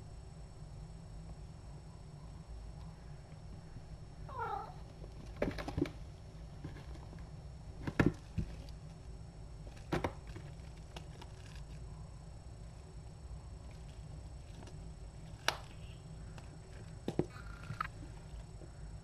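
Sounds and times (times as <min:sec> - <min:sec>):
cat chirping: 0:04.3 - 0:04.8.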